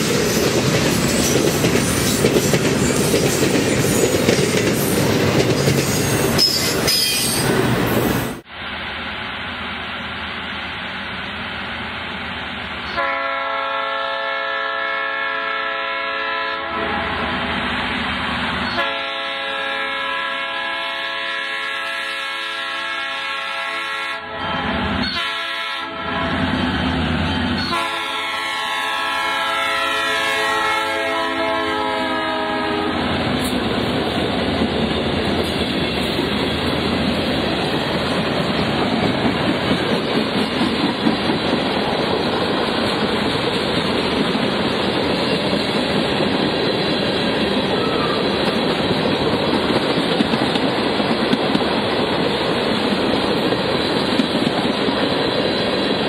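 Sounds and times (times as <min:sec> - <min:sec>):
freight train clattering on rails: 0:00.0 - 0:08.4, 0:27.5 - 0:56.0
locomotive air horn blasts: 0:12.9 - 0:17.6, 0:18.7 - 0:26.7, 0:27.6 - 0:33.1.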